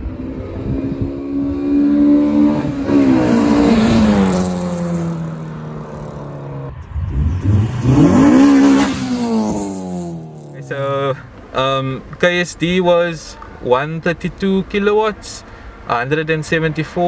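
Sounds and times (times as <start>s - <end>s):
car engine passing by: 0.0s - 11.3s.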